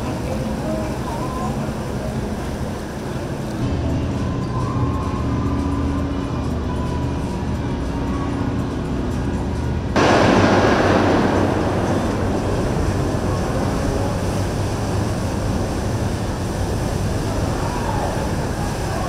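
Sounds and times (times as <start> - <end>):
boat engine drone: 0.0 - 19.0
bow wave rushing: 10.0 - 19.0.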